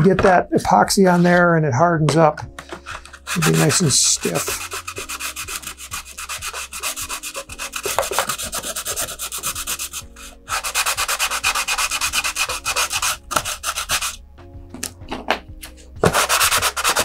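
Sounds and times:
sandpaper rubbing on paper tube: 0:02.8 - 0:14.2, 0:16.0 - 0:17.0.

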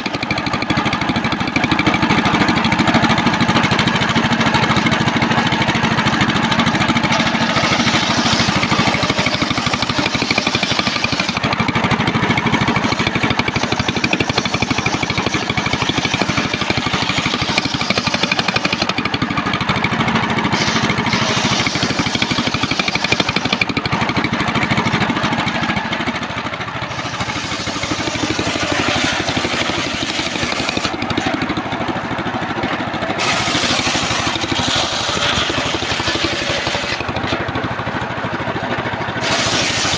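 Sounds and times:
circular saw cutting wood: 0:00.0 - 0:37.6, 0:39.2 - 0:39.9
saw engine running: 0:00.0 - 0:39.9.

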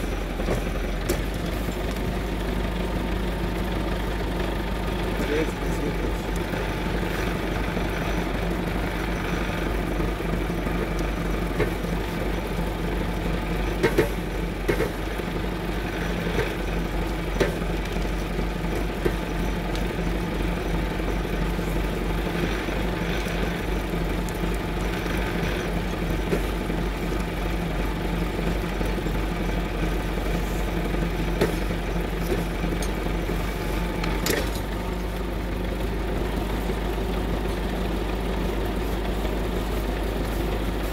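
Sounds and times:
tractor diesel engine running: 0:00.0 - 0:40.9
wood snapping: 0:00.3 - 0:02.4, 0:15.8 - 0:33.2, 0:33.8 - 0:35.3.

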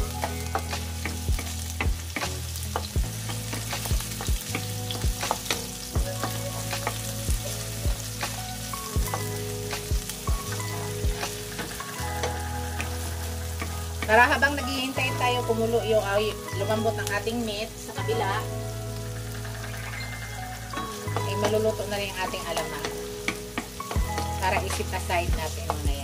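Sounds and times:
onion sizzling in hot oil: 0:00.0 - 0:26.0
utensil tapping and scraping pan: 0:22.6 - 0:24.8.

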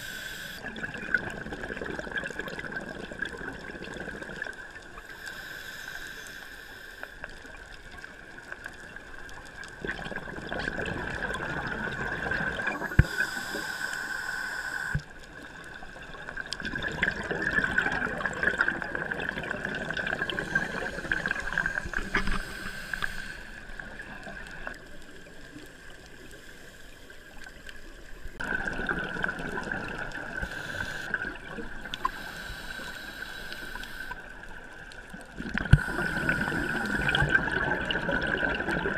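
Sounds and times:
diver breath bubbling underwater: 0:35.4 - 0:38.9.

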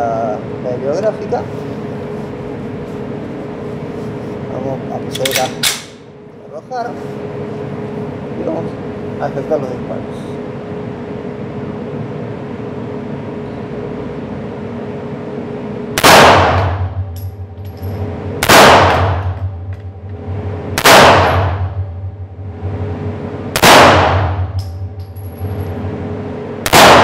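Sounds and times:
pistol shots echoing indoors: 0:16.0 - 0:16.9, 0:18.4 - 0:19.4, 0:20.8 - 0:21.8, 0:23.5 - 0:24.7, 0:26.6 - 0:27.0.

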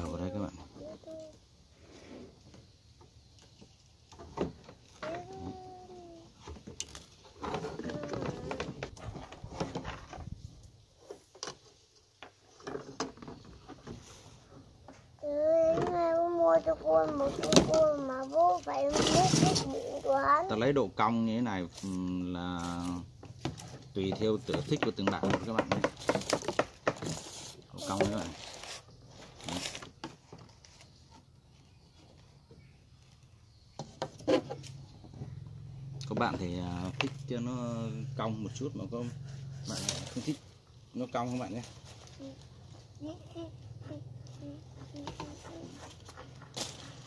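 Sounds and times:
rustle: 0:00.0 - 0:47.0
hands handling bamboo and string: 0:02.4 - 0:35.4, 0:43.8 - 0:47.0.

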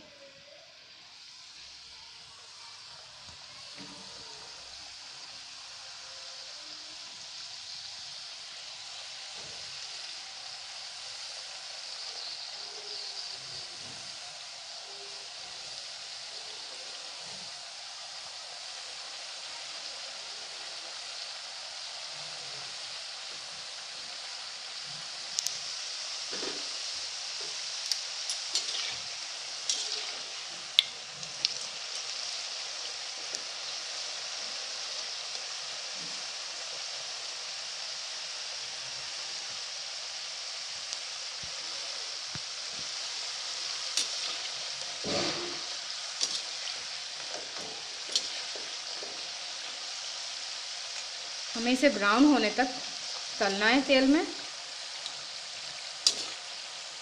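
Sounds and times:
dough sizzling in hot oil: 0:00.0 - 0:57.0
metal spoon scraping pan: 0:28.3 - 0:30.4, 0:44.0 - 0:46.7.

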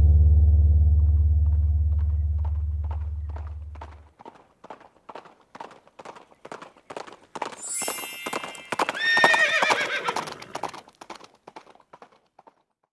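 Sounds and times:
horse hooves clip-clopping: 0:01.4 - 0:12.9
horse whinnying: 0:08.5 - 0:10.6.

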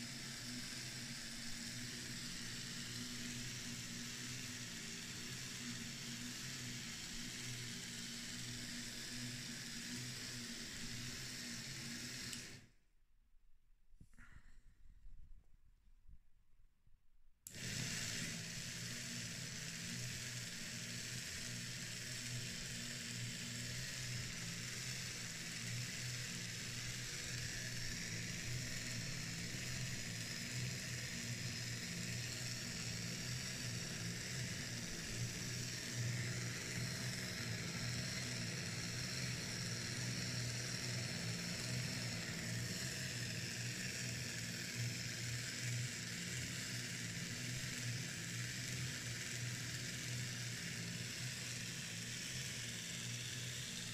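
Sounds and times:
hiss: 0:00.0 - 0:12.3, 0:17.5 - 0:53.9
machine mechanical whir: 0:00.1 - 0:12.7, 0:17.5 - 0:53.9.

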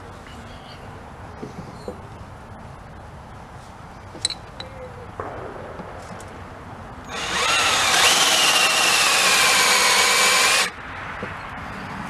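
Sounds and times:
cordless drill boring into metal: 0:07.1 - 0:10.7.

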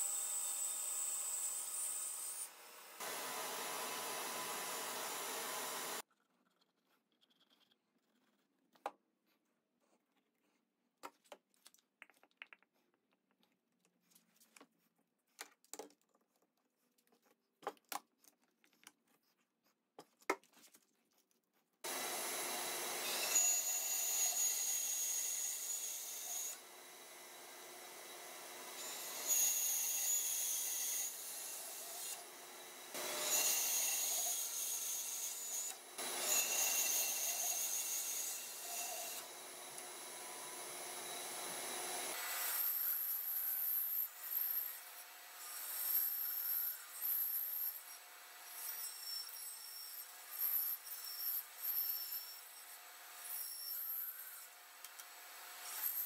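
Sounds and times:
bandsaw cutting wood: 0:00.0 - 0:06.0, 0:21.8 - 0:44.8.

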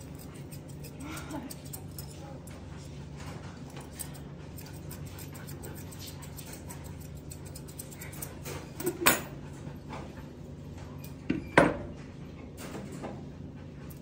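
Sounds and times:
scissors snipping dog fur: 0:00.0 - 0:09.4.

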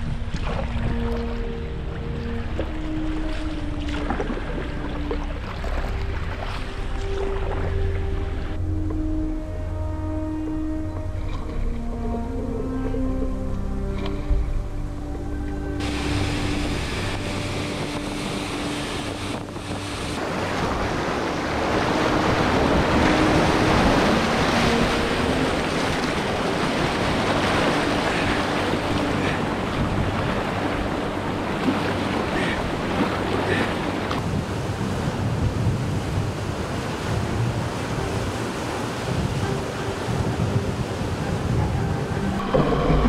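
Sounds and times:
whitewater rushing: 0:13.8 - 0:43.0
wind buffeting microphone: 0:15.8 - 0:43.0.

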